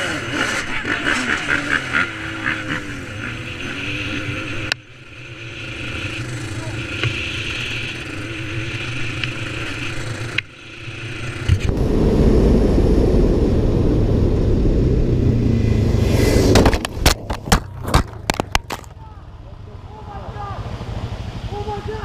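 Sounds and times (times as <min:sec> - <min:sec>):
quad bike engine: 0:00.0 - 0:22.0
loud low rushing noise: 0:11.3 - 0:18.4
sharp knocks and bangs: 0:16.4 - 0:18.9.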